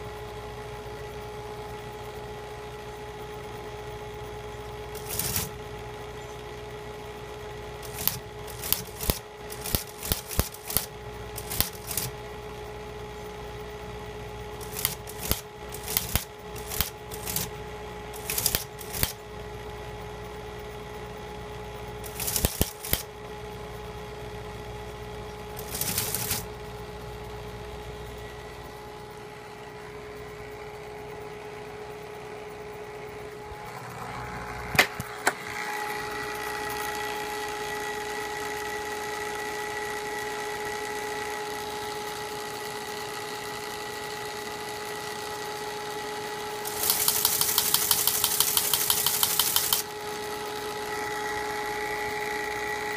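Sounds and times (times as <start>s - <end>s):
teleprinter motor humming: 0.0s - 52.9s
thin mechanical whine: 0.0s - 52.9s
teleprinter type strikes clacking: 46.7s - 49.9s.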